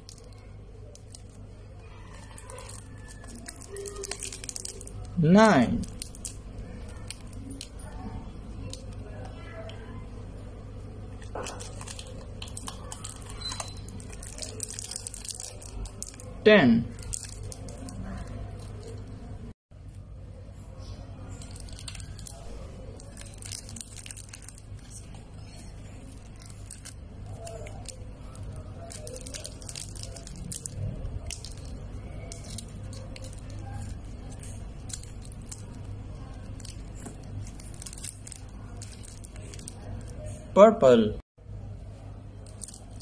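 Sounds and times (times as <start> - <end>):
plastic wrapper crinkling: 0.0 - 9.7, 11.0 - 19.3, 21.2 - 40.4, 42.3 - 43.0.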